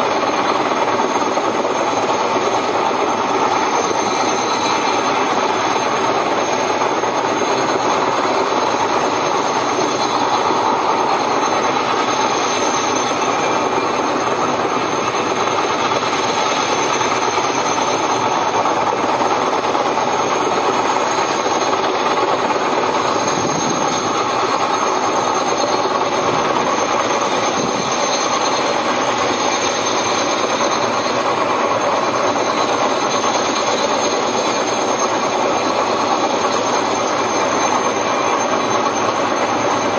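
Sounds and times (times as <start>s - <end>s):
helicopter rotor and engine noise: 0.0s - 39.9s
high even whine: 0.0s - 39.9s.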